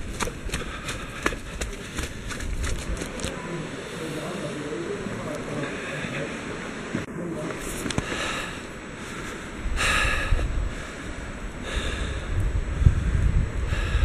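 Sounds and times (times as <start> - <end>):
person breathing heavily: 0.0 - 2.9, 5.6 - 6.6, 7.9 - 14.0
wind buffeting microphone: 0.0 - 3.5, 9.5 - 14.0.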